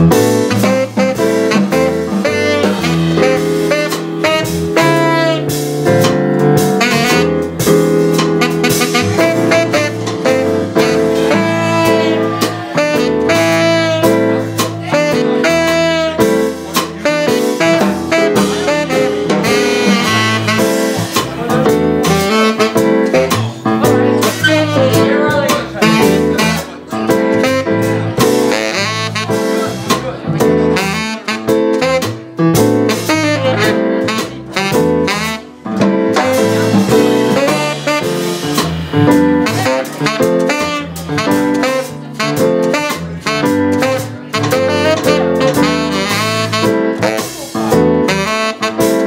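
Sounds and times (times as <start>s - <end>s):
tenor saxophone melody: 0.0s - 29.8s, 30.4s - 49.0s
jazz band playing: 0.0s - 49.0s.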